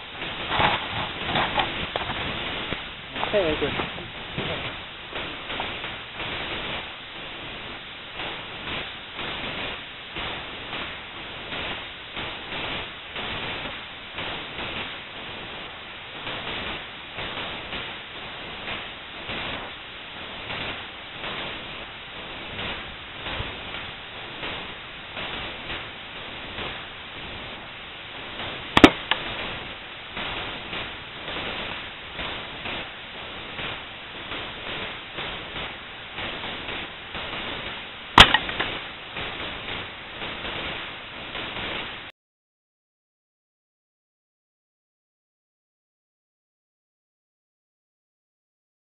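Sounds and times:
steady hiss: 0.0 - 42.1
quieter second crack: 28.8 - 29.3, 38.2 - 38.8
rifle shot crack: 28.8 - 29.3, 38.2 - 38.8.

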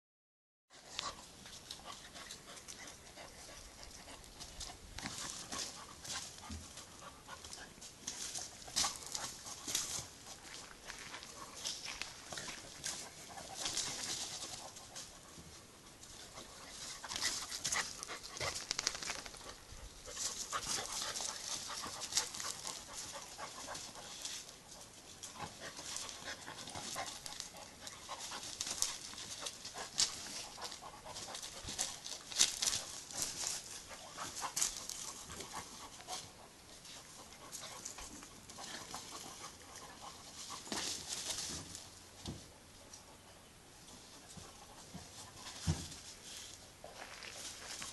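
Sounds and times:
dogs panting: 0.7 - 41.7
dogs scuffling on gravel: 1.3 - 15.3, 16.0 - 42.1, 44.0 - 47.9.

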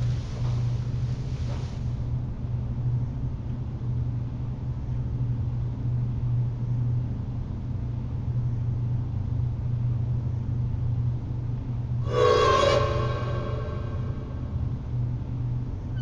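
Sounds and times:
deep drone: 12.0 - 15.3
low rumble: 12.0 - 15.4.

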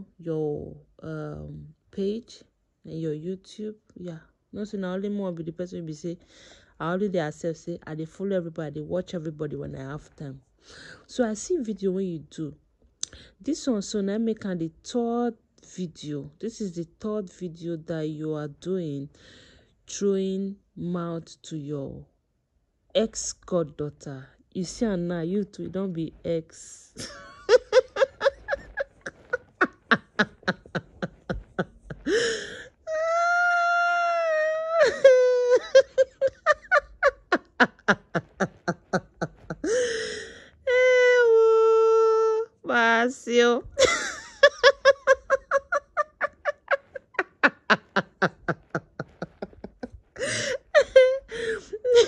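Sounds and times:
woman laughing: 27.0 - 42.4, 43.6 - 52.0
breathy gasp: 32.0 - 32.8, 39.7 - 40.6, 51.3 - 51.7.

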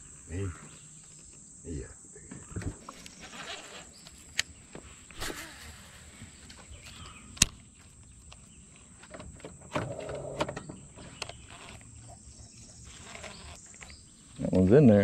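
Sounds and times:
fishing reel whirring: 5.1 - 6.6.

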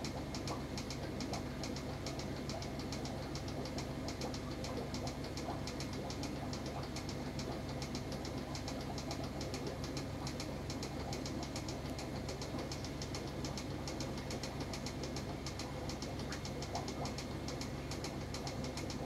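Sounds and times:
aquarium equipment hum: 0.0 - 19.0
rapid light ticks: 0.0 - 19.0.

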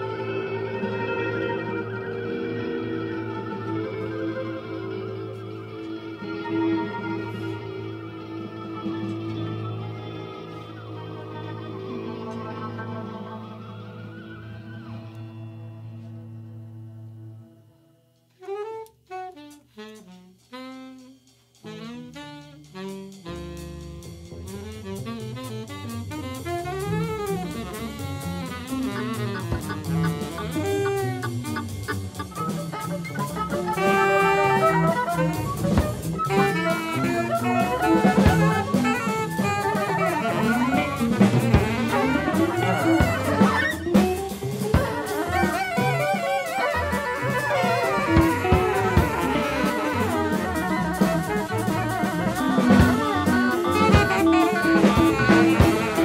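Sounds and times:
instrument playing sliding notes: 0.0 - 16.5, 24.5 - 56.0.

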